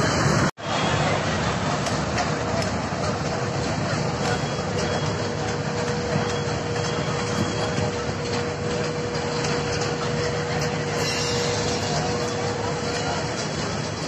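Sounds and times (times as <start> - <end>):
dense background din: 0.0 - 14.0
machinery hum: 0.0 - 14.0.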